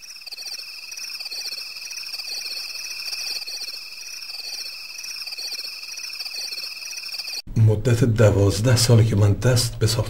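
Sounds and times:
frogs croaking: 0.0s - 7.4s
frogs trilling: 0.0s - 7.4s.

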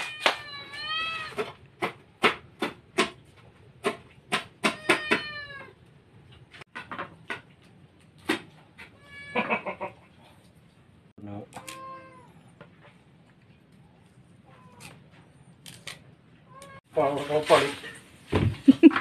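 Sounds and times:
cat meowing: 0.0s - 1.5s, 4.6s - 5.8s, 8.9s - 9.6s, 11.4s - 12.5s, 14.4s - 15.1s, 16.4s - 16.9s.

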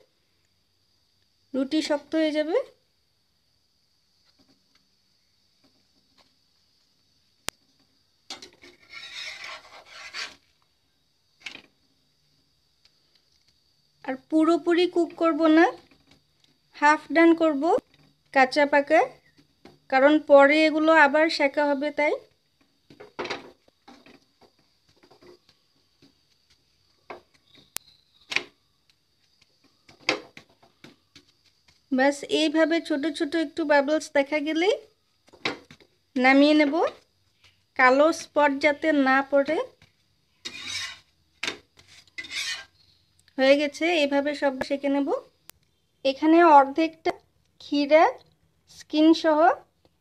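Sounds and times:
spatula scraping frying pan: 8.3s - 10.6s, 40.4s - 43.0s.

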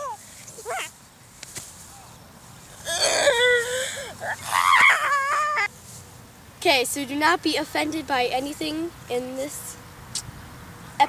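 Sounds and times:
girl crying: 2.9s - 5.7s
girl shrieking: 2.9s - 5.7s.

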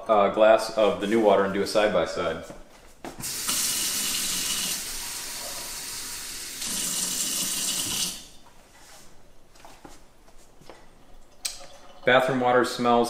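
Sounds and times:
faucet water filling glass: 3.2s - 8.3s, 11.3s - 12.4s.

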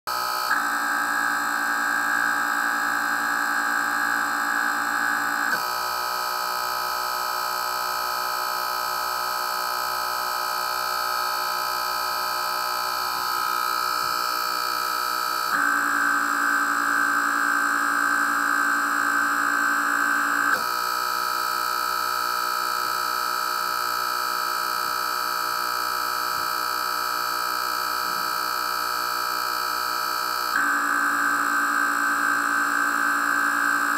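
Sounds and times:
electric air pumps whining: 0.1s - 5.7s, 15.0s - 20.7s, 30.5s - 33.9s.

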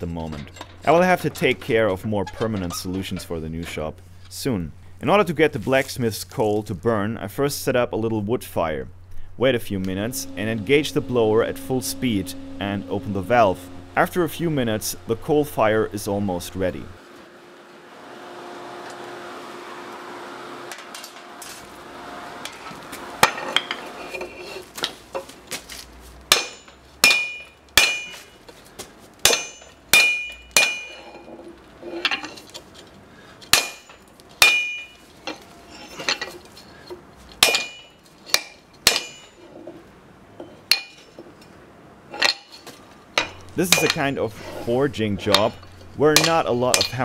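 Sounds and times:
forge fan blower whirring: 8.8s - 24.9s
hammer clanging on anvil: 23.2s - 23.9s, 26.3s - 28.4s, 29.2s - 31.3s, 33.5s - 36.4s, 37.4s - 39.4s, 40.4s - 41.2s, 42.2s - 44.2s, 45.2s - 47.0s.

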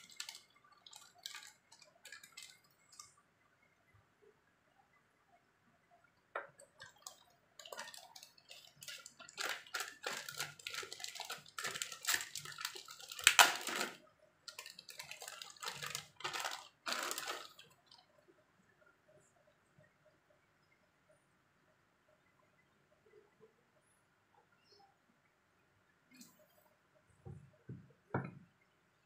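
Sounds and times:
plastic bags crinkling: 0.0s - 3.1s, 6.8s - 18.0s.

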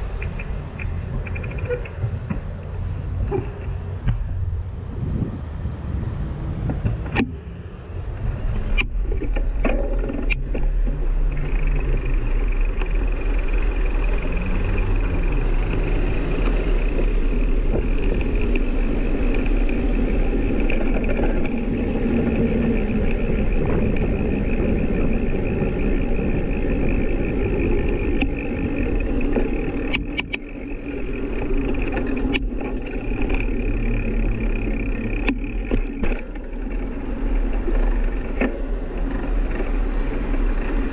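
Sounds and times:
sharp clicks and knocks: 0.0s - 4.3s, 8.7s - 22.5s, 27.7s - 40.9s
road and vehicle rumble: 0.0s - 40.9s.

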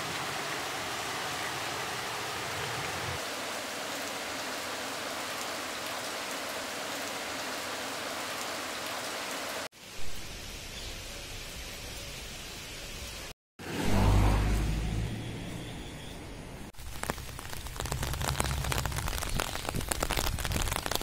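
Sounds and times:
steady rain: 0.0s - 13.3s, 16.8s - 21.0s.

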